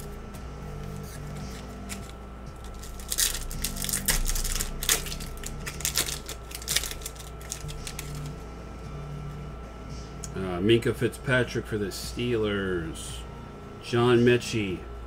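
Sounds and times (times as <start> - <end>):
foil wrapper crinkling and tearing: 0.9 - 8.3.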